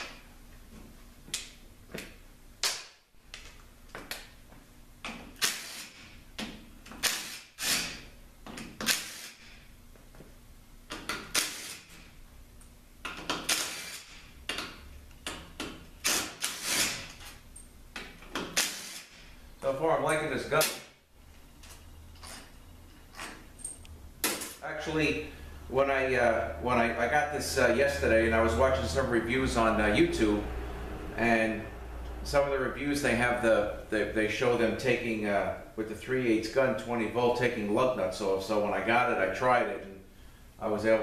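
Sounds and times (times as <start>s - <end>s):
cordless impact gun bursts: 5.4s - 6.2s, 7.0s - 8.1s, 8.8s - 9.6s, 11.2s - 12.0s, 13.4s - 14.3s, 16.0s - 17.1s, 18.5s - 19.3s.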